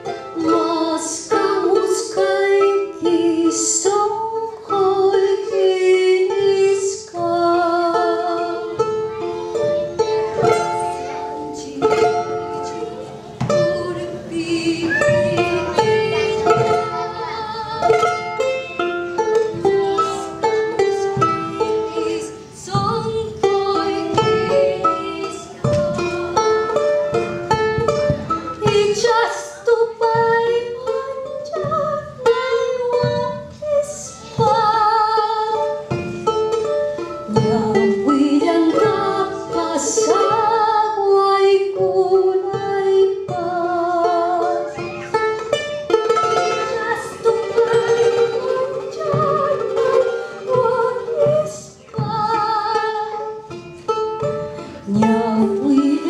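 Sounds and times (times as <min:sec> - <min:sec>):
strummed string instrument: 0:00.0 - 0:56.0
woman singing with vibrato: 0:00.4 - 0:08.8, 0:10.5 - 0:25.6, 0:28.6 - 0:36.0, 0:37.3 - 0:44.6, 0:46.1 - 0:53.6, 0:54.8 - 0:56.0
drum playing: 0:11.9 - 0:40.5, 0:44.2 - 0:56.0.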